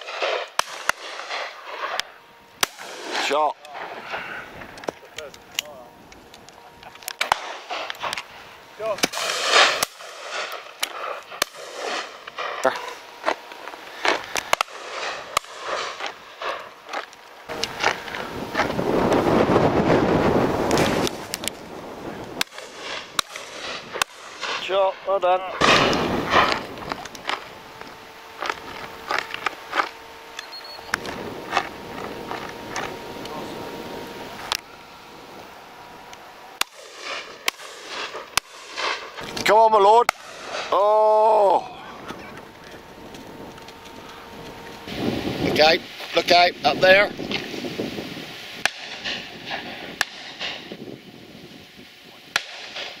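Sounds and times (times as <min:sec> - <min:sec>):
shotguns firing: 0:00.0 - 0:05.8, 0:06.6 - 0:19.3, 0:19.9 - 0:35.0, 0:35.7 - 0:41.0, 0:48.6 - 0:50.8, 0:52.3 - 0:53.0.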